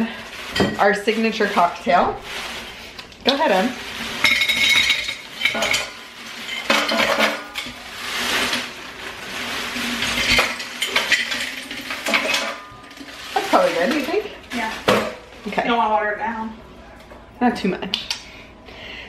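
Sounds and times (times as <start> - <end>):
plastic bag crinkling: 0.0 - 14.9
ice cubes clinking into glass jar: 3.3 - 14.2.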